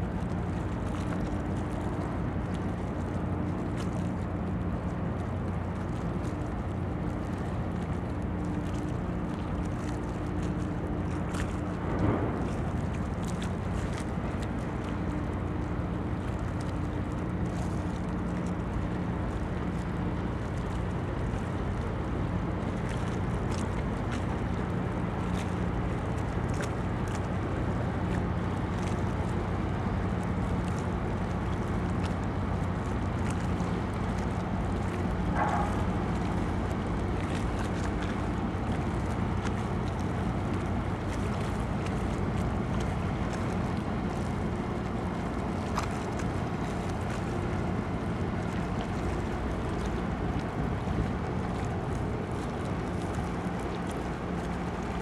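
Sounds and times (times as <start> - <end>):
wind on microphone: 11.2 - 14.9.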